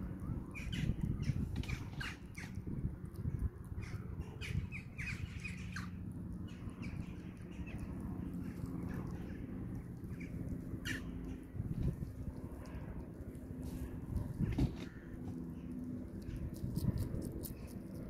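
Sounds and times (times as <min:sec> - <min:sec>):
hedgehog rustling in grass: 0:13.2 - 0:14.5.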